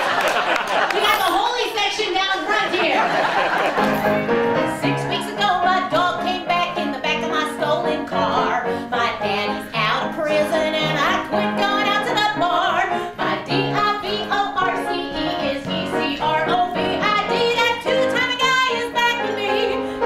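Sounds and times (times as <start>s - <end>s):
instrumental accompaniment: 3.5s - 20.0s
woman singing with vibrato: 4.6s - 20.0s.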